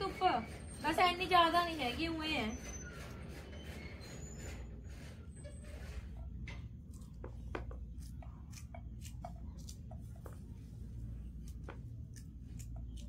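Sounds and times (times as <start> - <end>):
knife cutting okra: 6.8 - 10.6, 11.2 - 13.0.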